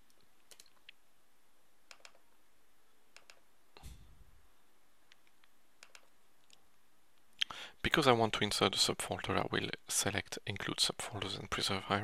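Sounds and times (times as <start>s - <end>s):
computer mouse clicks: 0.0s - 1.0s, 1.9s - 2.2s, 3.1s - 3.5s, 5.1s - 6.6s.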